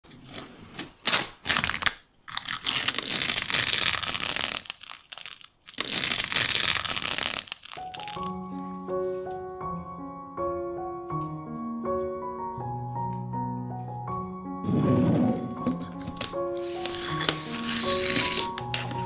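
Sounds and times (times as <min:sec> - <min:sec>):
loud crinkling crackling: 0:00.2 - 0:08.4, 0:14.8 - 0:19.0
soft piano music: 0:07.8 - 0:19.0.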